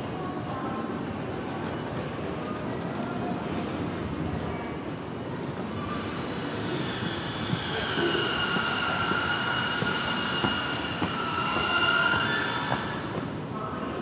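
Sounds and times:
station concourse bustle: 0.0 - 14.0
wheel squealing: 5.6 - 13.5
footsteps: 5.9 - 13.5.

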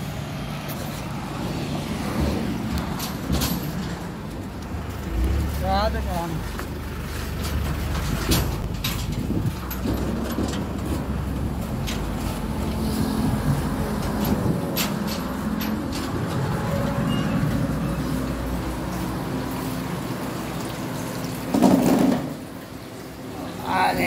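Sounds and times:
passing traffic rumble: 0.0 - 24.0
wind on microphone: 7.9 - 11.2.

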